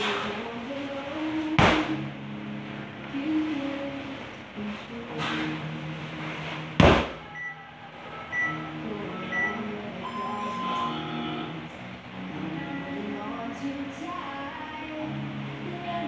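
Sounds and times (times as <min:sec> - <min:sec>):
workout timer beeps: 0:07.3 - 0:11.5.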